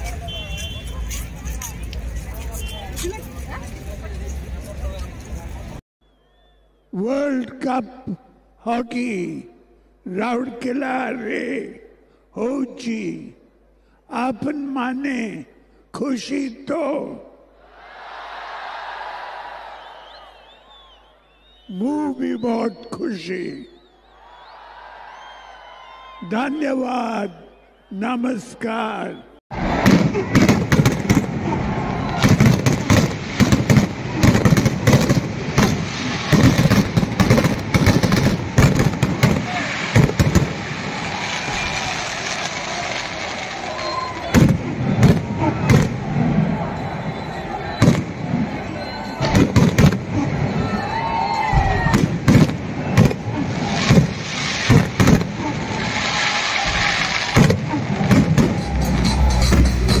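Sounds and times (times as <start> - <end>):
firework rising whistle: 19.7 - 21.8, 23.6 - 26.2, 39.4 - 49.5
fireworks bangs and crackles: 29.5 - 60.0
electronic music with beat: 58.4 - 60.0.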